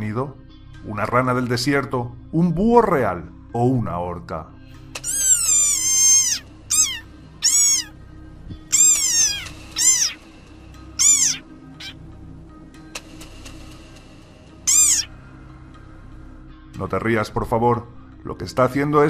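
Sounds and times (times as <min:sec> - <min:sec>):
frog squeaking: 0:05.0 - 0:08.0, 0:08.6 - 0:10.3, 0:11.0 - 0:12.0, 0:14.6 - 0:15.2.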